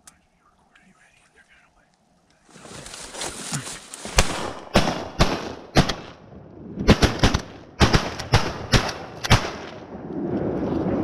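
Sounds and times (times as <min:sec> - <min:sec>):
shotguns firing: 0:04.0 - 0:06.2, 0:06.9 - 0:09.8.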